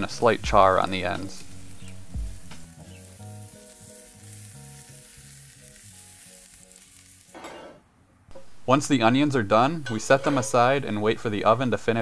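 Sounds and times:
soft background music: 0.0 - 7.4
onions sizzling in a skillet: 0.0 - 7.6.

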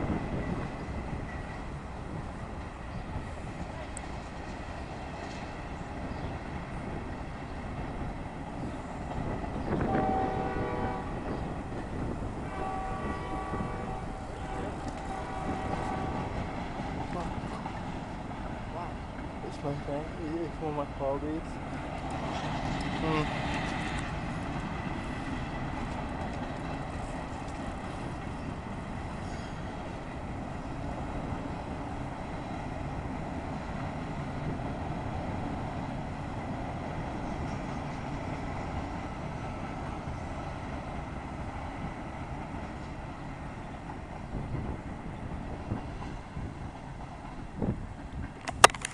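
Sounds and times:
freight train rumbling on rails: 0.0 - 48.9.

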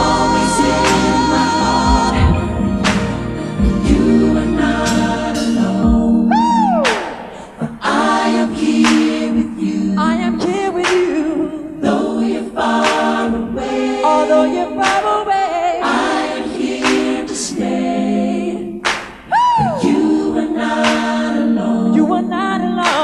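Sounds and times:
layered choir voices: 0.0 - 19.0, 19.6 - 23.0
high swooping tone: 2.0 - 3.8
sharp hits: 2.1 - 3.3.

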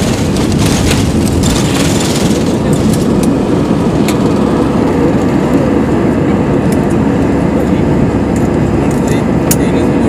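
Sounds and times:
jet engines roaring: 0.0 - 10.0.

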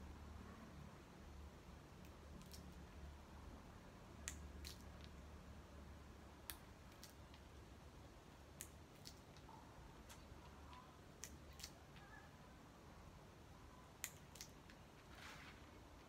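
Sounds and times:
faint low hum: 0.0 - 16.0
small sharp snipping clicks: 4.2 - 5.2.

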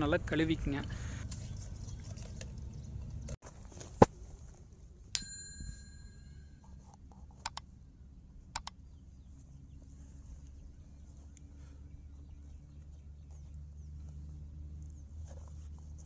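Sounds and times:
bell-like ding: 5.2 - 6.6
sharp clicks: 7.4 - 7.7, 8.6 - 8.8.

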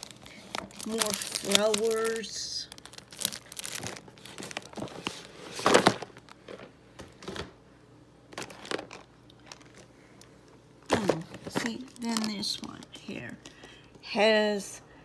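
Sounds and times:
plastic packets crinkling: 0.0 - 6.7, 8.3 - 10.3, 10.9 - 13.3.

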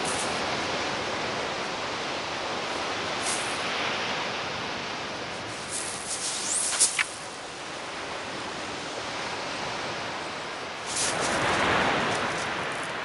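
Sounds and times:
surf on shingle beach: 0.0 - 13.0
wind: 0.0 - 13.0
short high zipping sound: 5.7 - 7.1.

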